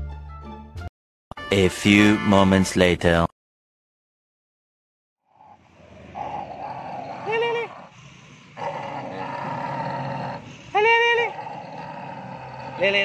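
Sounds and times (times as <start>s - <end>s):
dogs growling: 5.3s - 13.0s.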